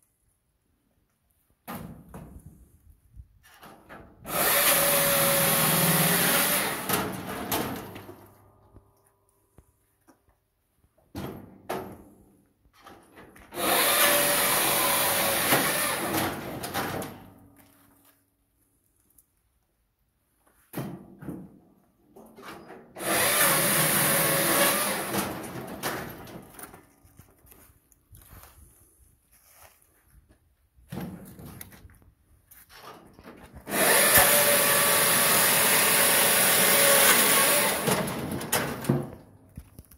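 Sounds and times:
circular saw cutting log: 0:04.3 - 0:07.2, 0:13.6 - 0:16.6, 0:23.0 - 0:25.8, 0:33.7 - 0:38.9.

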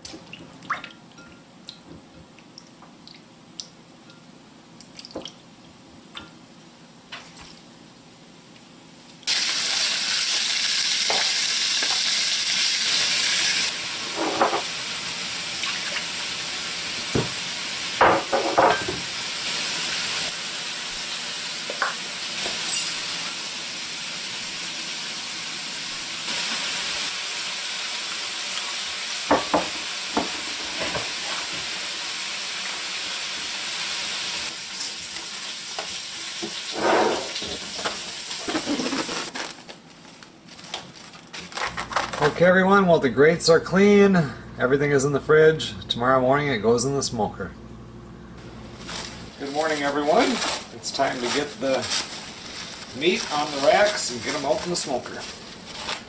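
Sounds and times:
meat sizzling in a frying pan: 0:09.2 - 0:39.3.

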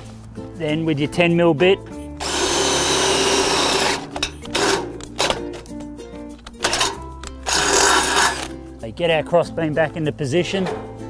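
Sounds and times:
drill boring through steel: 0:02.2 - 0:04.8, 0:07.5 - 0:08.5
clicks and knocks: 0:10.6 - 0:11.0.

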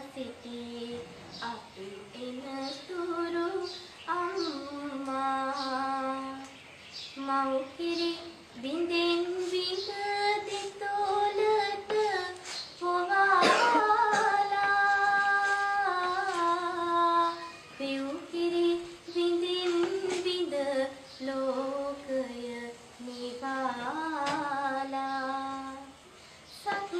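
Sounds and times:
singer breathing: 0:26.0 - 0:26.5.

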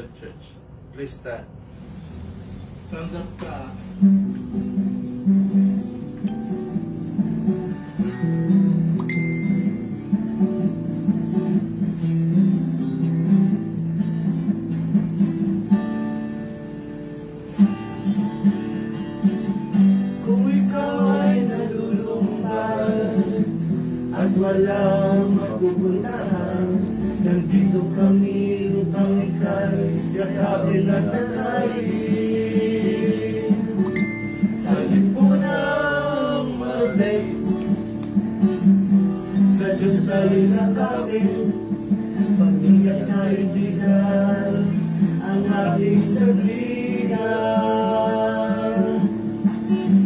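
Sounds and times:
acoustic guitar strumming chords: 0:03.3 - 0:50.0
men singing a hymn: 0:20.2 - 0:37.8, 0:39.4 - 0:49.4.

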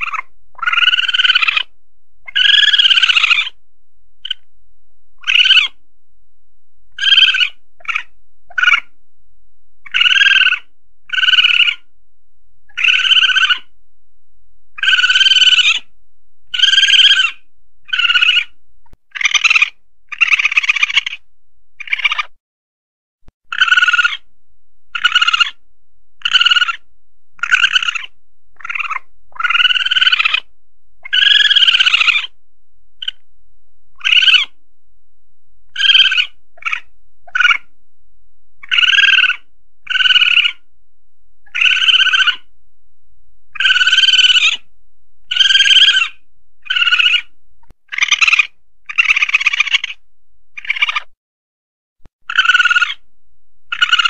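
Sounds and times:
civet calling: 0:00.0 - 0:03.6, 0:04.2 - 0:04.5, 0:05.2 - 0:05.8, 0:06.9 - 0:09.0, 0:09.8 - 0:11.9, 0:12.7 - 0:13.8, 0:14.8 - 0:22.4, 0:23.4 - 0:24.3, 0:24.9 - 0:25.6, 0:26.2 - 0:32.4, 0:33.0 - 0:33.2, 0:33.9 - 0:34.6, 0:35.7 - 0:37.8, 0:38.6 - 0:40.7, 0:41.4 - 0:42.5, 0:43.5 - 0:51.2, 0:52.2 - 0:54.0.

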